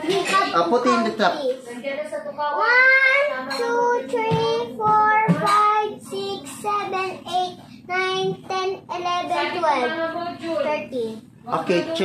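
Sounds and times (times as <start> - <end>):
girl counting in sing-song voice: 2.5 - 11.2.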